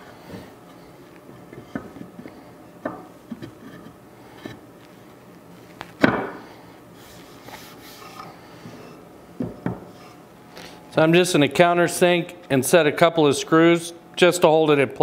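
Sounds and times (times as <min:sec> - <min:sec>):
wood knocking on wooden workbench: 0:06.0 - 0:06.4, 0:09.4 - 0:09.9.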